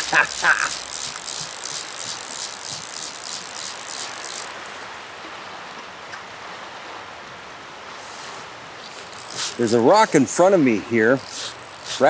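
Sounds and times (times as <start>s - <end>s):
fishing reel ratchet clicking: 0.0s - 4.6s, 8.9s - 9.8s, 11.0s - 12.0s
river rapids rushing: 0.0s - 5.0s.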